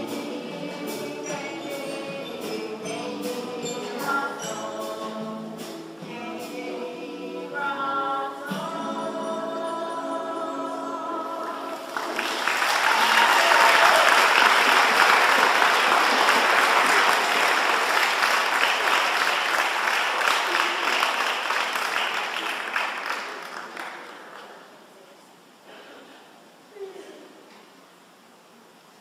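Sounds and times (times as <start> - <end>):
choir singing: 0.0 - 12.1
audience clapping: 11.8 - 24.8.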